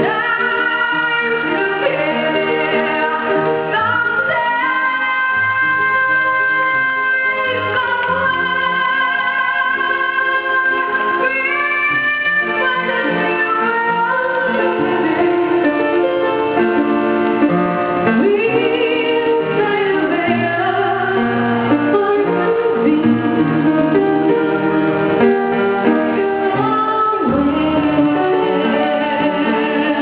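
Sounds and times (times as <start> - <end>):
woman singing a ballad: 0.0 - 16.3, 18.0 - 24.8, 25.5 - 30.0
instrumental accompaniment: 0.0 - 30.0.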